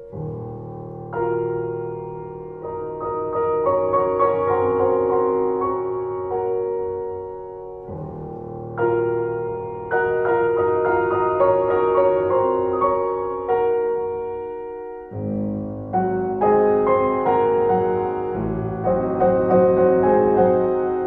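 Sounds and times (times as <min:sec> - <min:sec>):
piano music: 0:00.0 - 0:21.0.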